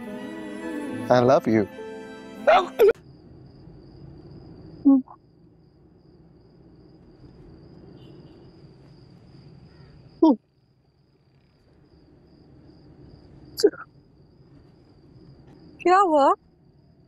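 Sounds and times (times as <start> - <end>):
high insect chirr: 0.0 - 17.0.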